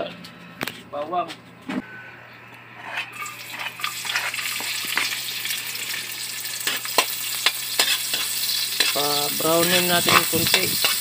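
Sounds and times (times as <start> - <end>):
food sizzling in hot oil: 3.2 - 11.0.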